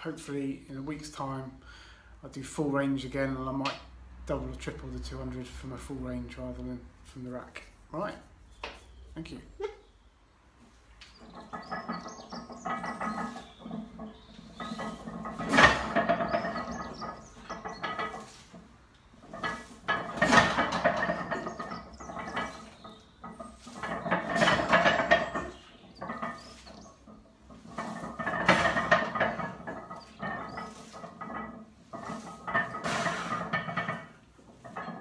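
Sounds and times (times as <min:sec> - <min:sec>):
weight plates clanking: 0:11.2 - 0:35.0.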